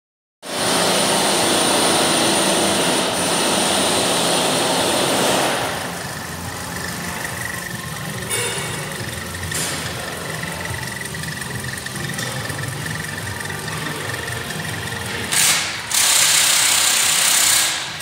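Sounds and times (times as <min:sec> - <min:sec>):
loud rushing noise: 0:00.5 - 0:07.2
car engine running: 0:00.5 - 0:18.0.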